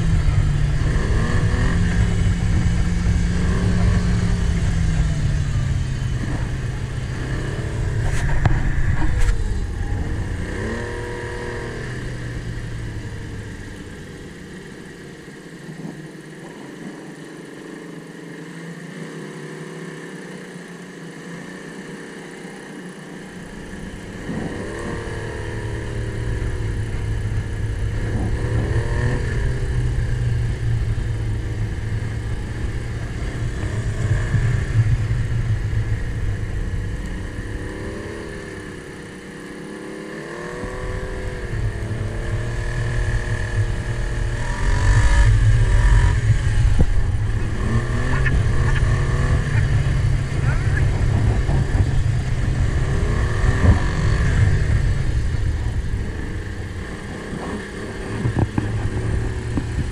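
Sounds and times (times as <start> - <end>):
wind rumble on microphone: 0.0 - 14.6, 40.5 - 59.9
snowmobile engine revving: 0.0 - 16.7, 21.2 - 59.9.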